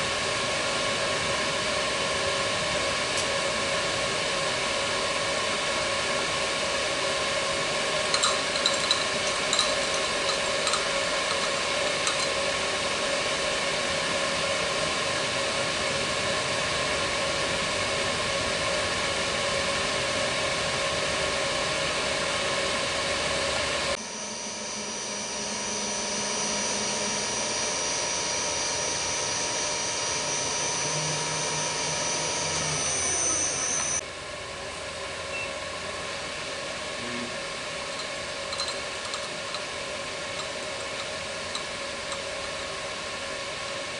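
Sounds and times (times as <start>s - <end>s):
milling machine humming: 0.0s - 34.1s, 35.3s - 43.9s.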